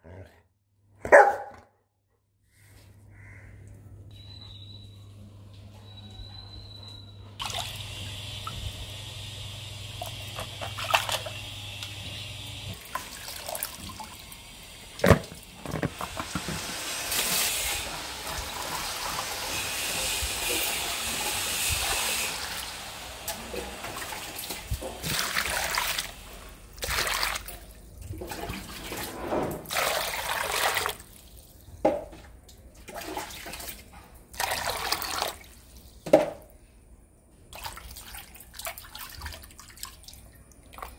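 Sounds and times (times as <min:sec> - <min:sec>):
water splashing in basins: 0:07.4 - 0:09.0, 0:09.6 - 0:36.5, 0:37.5 - 0:40.9.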